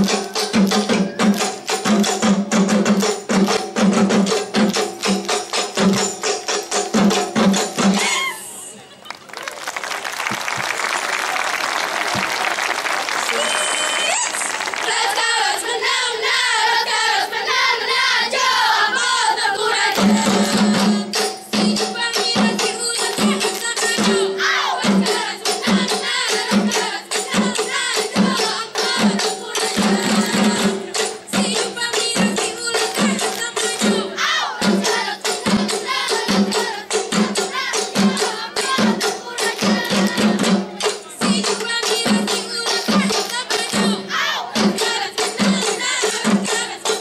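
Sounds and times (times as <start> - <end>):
steady drum beat: 0.0 - 8.3, 19.7 - 47.0
hand claps and body slaps: 9.1 - 13.5
group singing: 14.7 - 47.0.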